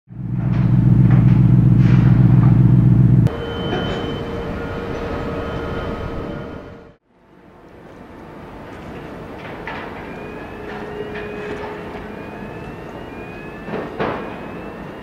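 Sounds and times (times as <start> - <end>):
deep diesel engine rumble: 0.1 - 7.0
heavy machinery whining: 0.2 - 7.0, 7.9 - 15.0.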